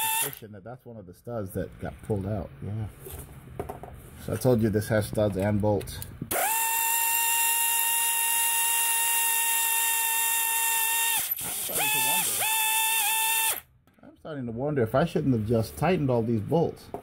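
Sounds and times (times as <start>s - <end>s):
cordless power tool whining: 0.0s - 0.4s, 6.3s - 13.7s.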